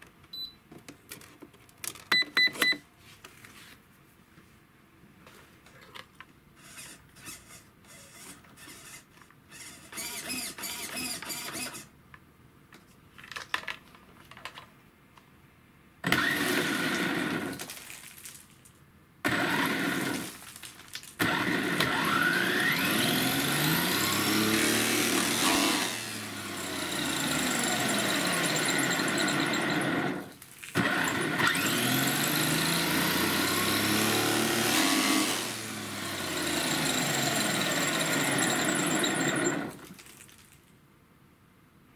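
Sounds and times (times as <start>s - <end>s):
electric motor whining: 21.2s - 39.8s.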